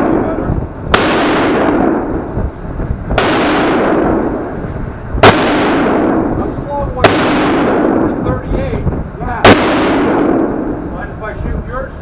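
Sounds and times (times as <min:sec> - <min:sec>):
gunshots with loud echo: 0:00.0 - 0:02.4, 0:03.1 - 0:08.6, 0:09.3 - 0:11.0.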